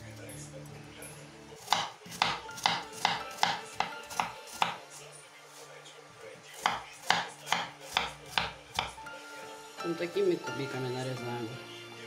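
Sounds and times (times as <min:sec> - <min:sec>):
knife chopping on wooden board: 0:01.6 - 0:04.9, 0:06.6 - 0:09.0.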